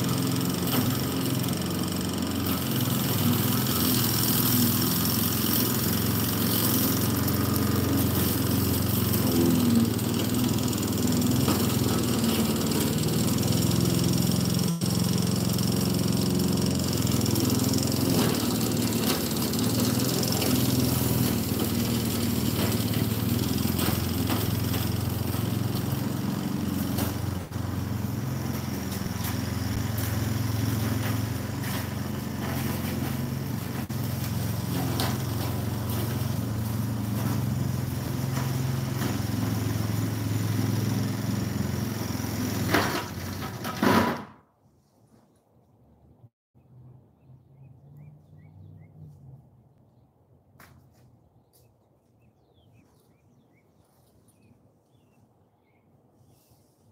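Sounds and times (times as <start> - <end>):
lawn mower engine running: 0.0 - 44.3.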